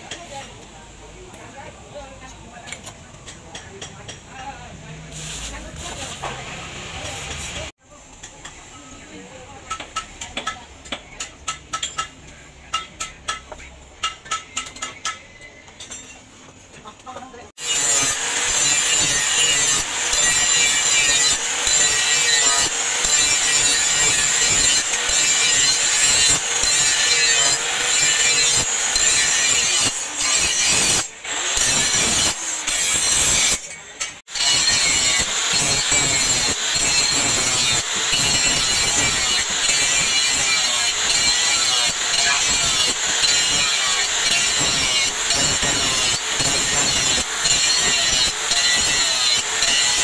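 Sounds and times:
angle grinder grinding steel: 0:17.6 - 0:50.0.

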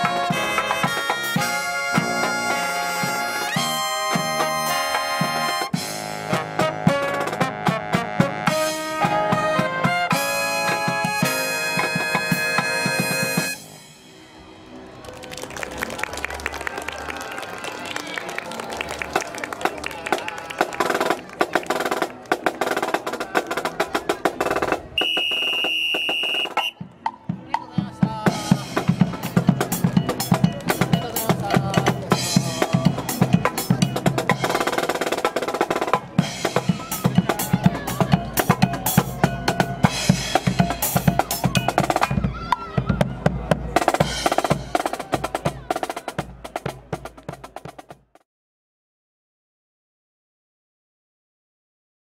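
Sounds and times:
marching brass band playing: 0:00.0 - 0:14.8, 0:20.5 - 0:48.2
snare and bass drums: 0:20.6 - 0:48.2.

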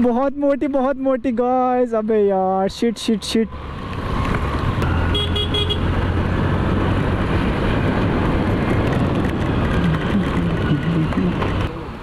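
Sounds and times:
tyres on wet road: 0:03.0 - 0:12.0
scooter engine: 0:03.6 - 0:11.7.

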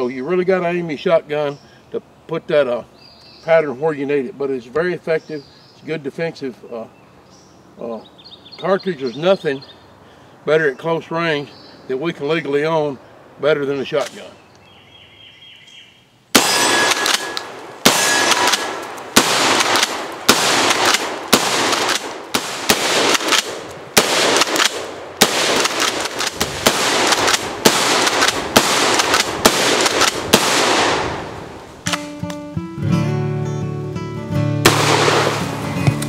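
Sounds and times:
shotgun shots: 0:16.3 - 0:32.2, 0:34.6 - 0:35.6.

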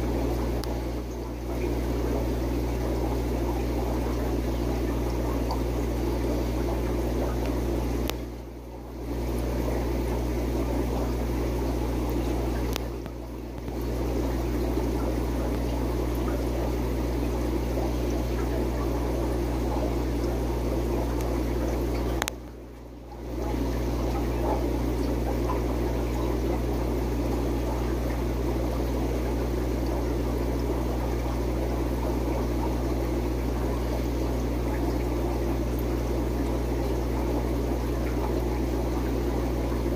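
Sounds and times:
aquarium filter running: 0:00.0 - 0:39.9
low electrical hum: 0:00.0 - 0:39.9
click: 0:12.7 - 0:13.8.

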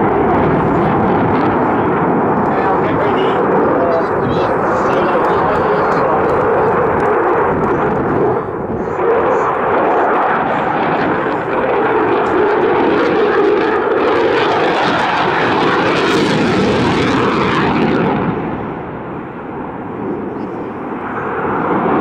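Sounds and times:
fighter jet rumble overhead: 0:00.0 - 0:22.0.

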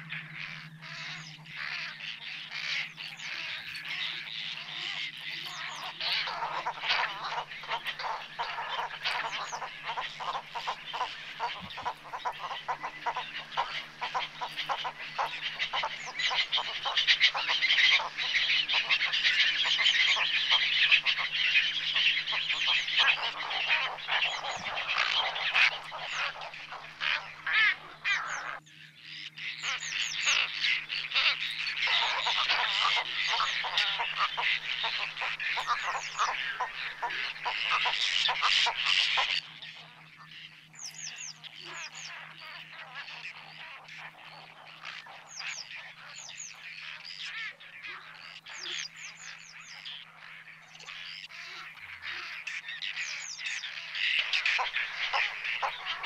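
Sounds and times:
flock of waterbirds calling: 0:00.0 - 0:56.0.

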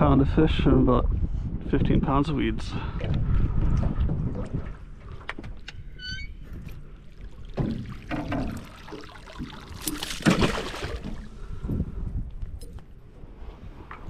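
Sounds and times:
water splashing and streaming: 0:06.4 - 0:11.6.

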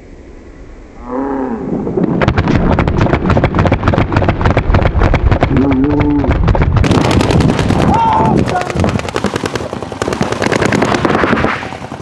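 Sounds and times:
paintball markers firing: 0:02.3 - 0:12.0
person shouting: 0:07.8 - 0:08.8.

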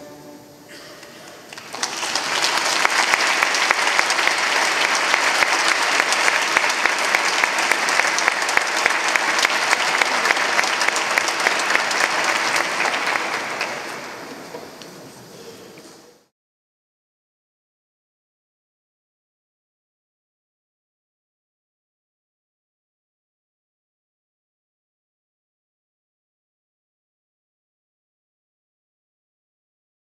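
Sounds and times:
audience applauding: 0:01.0 - 0:15.0.

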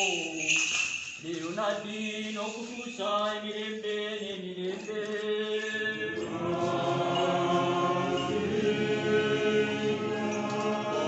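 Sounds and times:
voices chanting sustained notes: 0:05.8 - 0:11.0.

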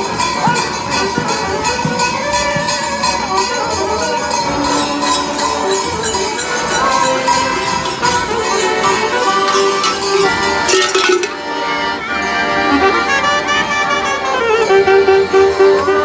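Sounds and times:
accordion: 0:00.0 - 0:16.0
bells jingling: 0:00.0 - 0:16.0
saxophone: 0:12.1 - 0:16.0.

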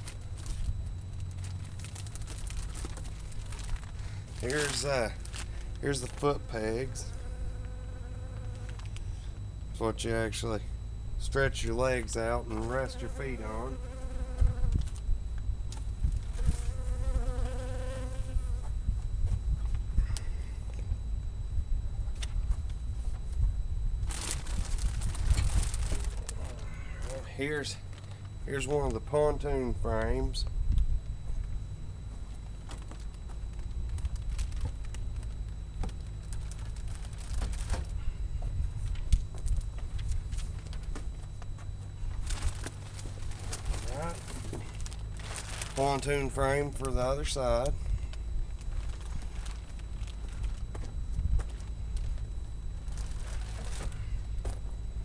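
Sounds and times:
plastic packaging crinkling: 0:00.0 - 0:07.0, 0:24.1 - 0:27.2, 0:32.7 - 0:38.0, 0:42.1 - 0:47.0, 0:48.1 - 0:50.7, 0:51.4 - 0:54.4
buzzing drone: 0:00.0 - 0:55.0
wind rumble on microphone: 0:13.8 - 0:26.7, 0:29.7 - 0:41.2, 0:47.7 - 0:55.0
wind rumbling on microphone: 0:13.8 - 0:26.8, 0:29.8 - 0:31.9.

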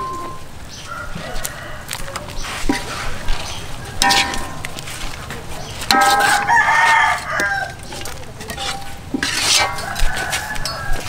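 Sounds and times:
rooster crowing: 0:00.8 - 0:02.5, 0:06.4 - 0:07.8, 0:09.6 - 0:11.0.

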